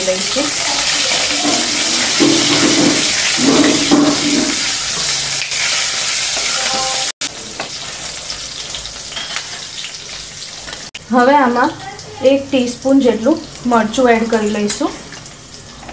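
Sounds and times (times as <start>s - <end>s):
spices sizzling in hot oil: 0.0s - 15.9s
spatula scraping pan: 0.8s - 7.1s.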